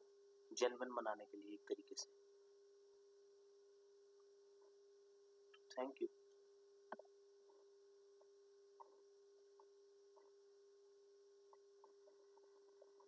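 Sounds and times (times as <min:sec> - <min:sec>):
faint steady hum: 0:00.0 - 0:13.0
faint ticks: 0:05.5 - 0:10.4.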